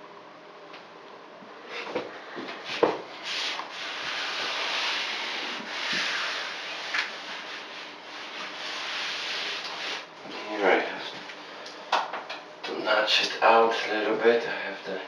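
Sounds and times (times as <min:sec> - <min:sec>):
hands rubbing tape on wall: 0:01.7 - 0:10.1.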